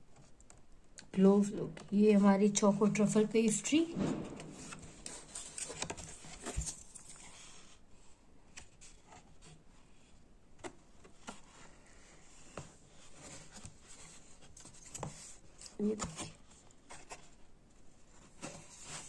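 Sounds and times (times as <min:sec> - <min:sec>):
cardboard box clicks and scraping: 0:04.6 - 0:07.6.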